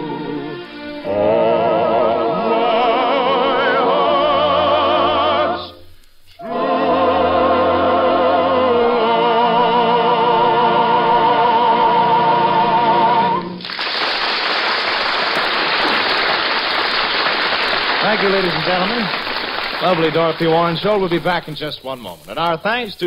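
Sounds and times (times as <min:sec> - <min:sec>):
operatic singing with orchestra: 0:00.0 - 0:05.8, 0:06.4 - 0:13.6.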